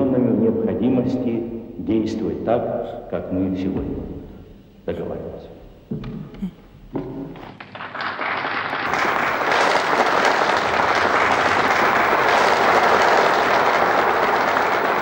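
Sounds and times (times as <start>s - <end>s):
large audience applauding: 7.4s - 15.0s.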